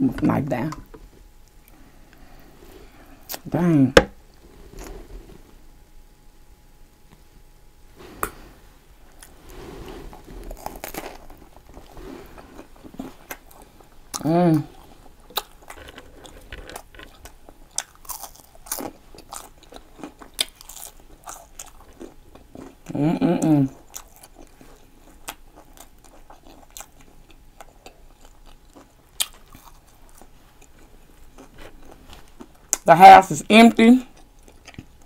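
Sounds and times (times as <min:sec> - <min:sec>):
chewing crispy fries: 0:10.1 - 0:35.0
person humming: 0:14.2 - 0:14.8, 0:22.9 - 0:23.8.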